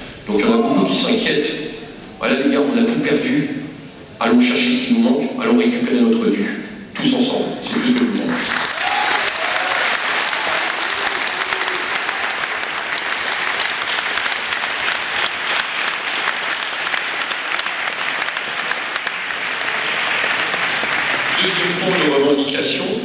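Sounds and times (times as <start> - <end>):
audience applauding: 7.7 - 22.6.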